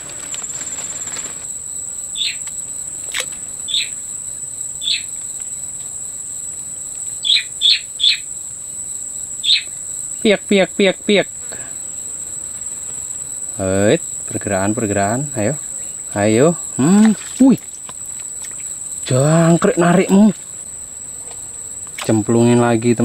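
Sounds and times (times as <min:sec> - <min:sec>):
high-pitched insect drone: 0:00.0 - 0:23.0
fast pitched calls: 0:02.1 - 0:02.4, 0:03.7 - 0:04.0, 0:04.8 - 0:05.1, 0:07.2 - 0:08.3, 0:09.4 - 0:09.8.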